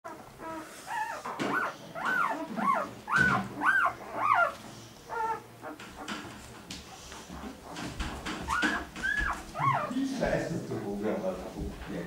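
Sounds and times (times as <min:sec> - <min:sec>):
puppies squealing: 0:00.1 - 0:06.3, 0:07.3 - 0:10.3.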